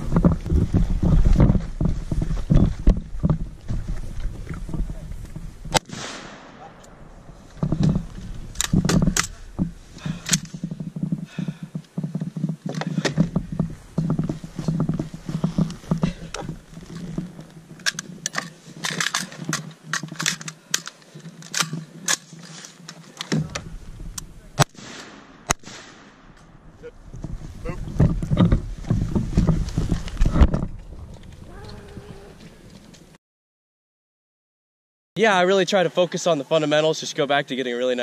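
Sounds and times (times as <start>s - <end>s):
rifle shots: 5.7s - 7.2s, 24.6s - 26.4s.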